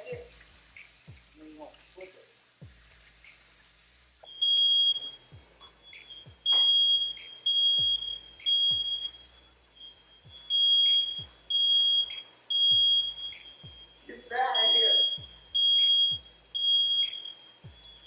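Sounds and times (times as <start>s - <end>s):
low thumps: 2.6s - 14.5s, 15.1s - 18.0s
smoke alarm beeping: 4.2s - 18.0s.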